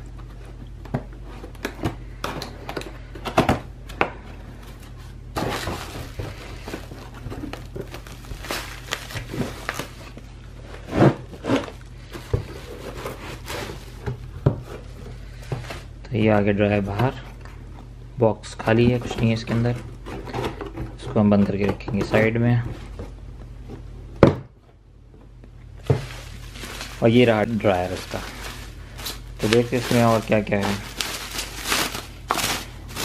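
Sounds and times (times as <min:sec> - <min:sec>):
plastic wrapping crinkling: 0:04.9 - 0:10.8, 0:25.8 - 0:33.0
cardboard flaps clicking and scraping: 0:05.3 - 0:10.2, 0:25.8 - 0:33.0
box thuds: 0:05.4 - 0:09.9, 0:25.8 - 0:27.0.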